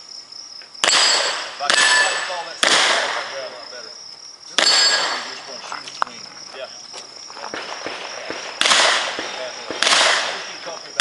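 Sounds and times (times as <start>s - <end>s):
insects buzzing: 0.0s - 11.0s
revolver shots with echo: 0.8s - 3.5s, 4.5s - 5.4s, 7.5s - 11.0s
footstep scuffs and clicks: 5.6s - 8.4s.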